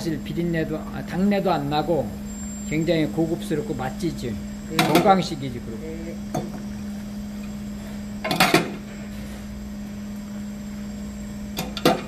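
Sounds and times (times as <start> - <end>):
kitchen equipment humming: 0.0 - 12.0.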